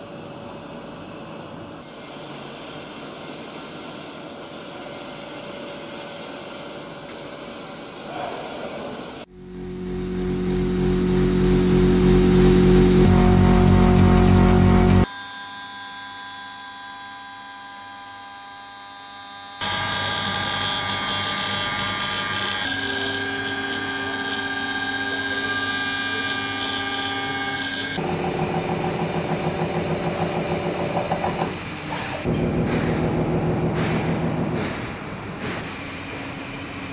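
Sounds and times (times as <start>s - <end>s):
spindle whine and cutting noise: 9.3s - 31.5s.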